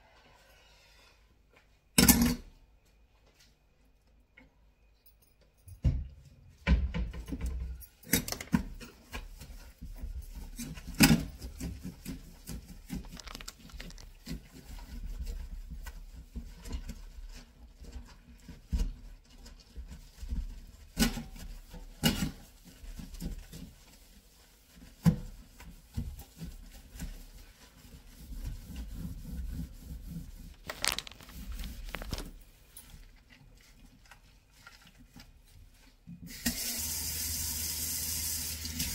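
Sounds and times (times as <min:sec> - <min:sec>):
sponge scrubbing steel sink: 0:08.9 - 0:31.8.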